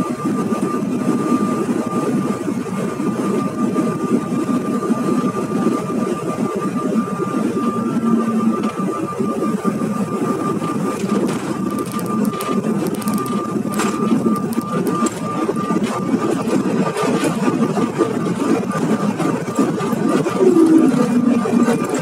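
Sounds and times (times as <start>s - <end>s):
jet engine rumble: 0.0s - 22.0s
thin high whine: 7.0s - 16.6s
rattles and clicks: 10.6s - 17.3s.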